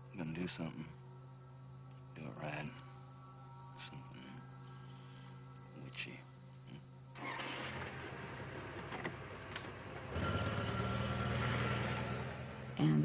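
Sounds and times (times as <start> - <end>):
crickets chirping: 0.0 - 13.0
car engine starting and running: 7.2 - 13.0.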